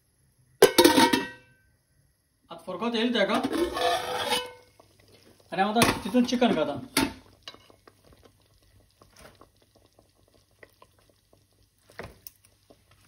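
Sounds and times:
thick gravy bubbling in a pot: 3.2 - 13.0
small pops: 7.3 - 13.0.

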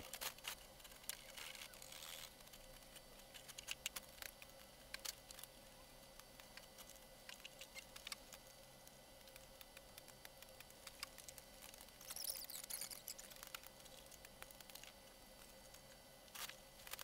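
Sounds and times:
canvas tearing: 1.2 - 2.4.

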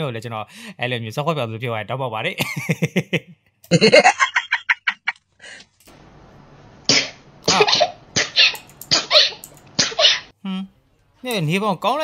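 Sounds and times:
woman coughing: 7.0 - 10.3.

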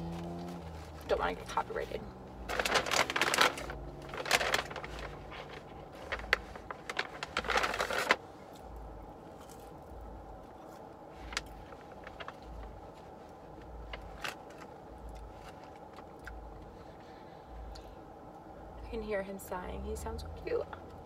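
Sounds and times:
car interior hum: 0.0 - 21.0
food wrapper rustling: 2.5 - 16.4.

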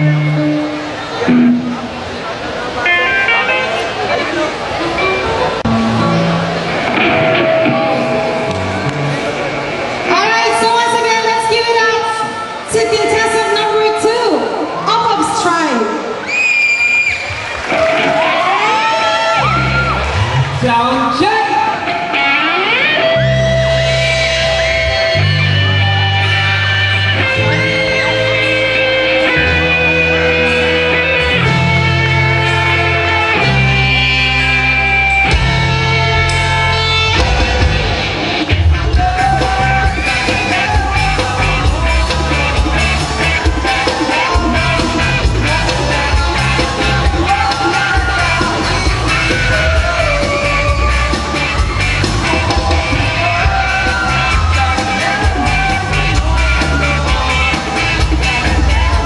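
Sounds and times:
rock band playing: 0.0 - 16.3, 17.2 - 59.0
drums steady beat: 35.3 - 59.0
person singing: 38.6 - 59.0.

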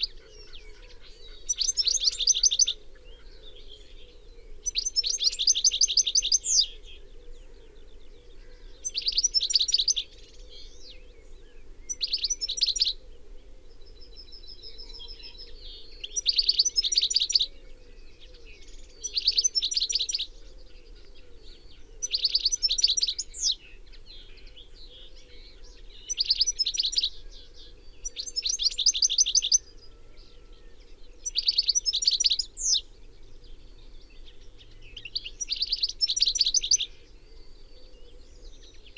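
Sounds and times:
goldfinch twittering: 0.8 - 2.8.

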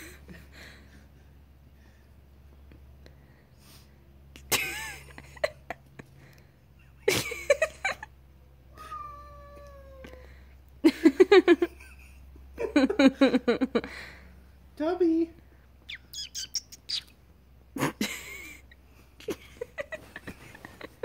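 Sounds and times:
cat meowing: 8.7 - 10.2.

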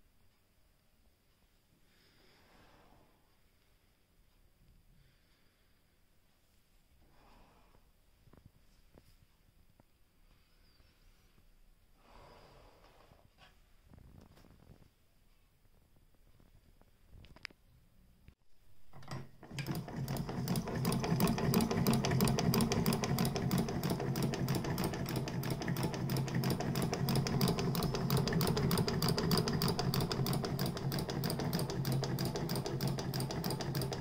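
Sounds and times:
hand-crank sewing machine clatter: 18.9 - 34.0.

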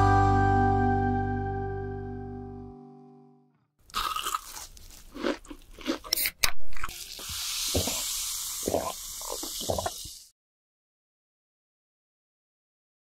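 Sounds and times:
crunching toast: 3.8 - 6.9
steady hiss: 7.0 - 10.3.

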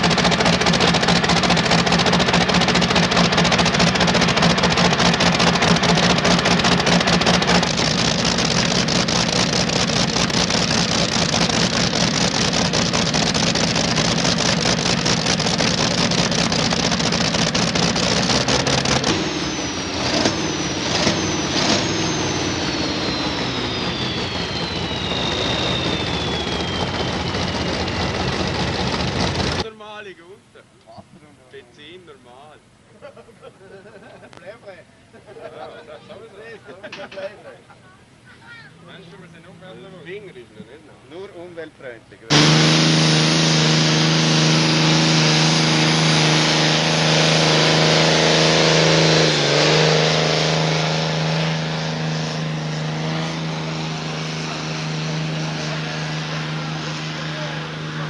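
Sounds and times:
loud tractor engine running: 0.0 - 29.7, 42.3 - 58.0
high whine falling in pitch: 0.0 - 31.2, 42.3 - 58.0.

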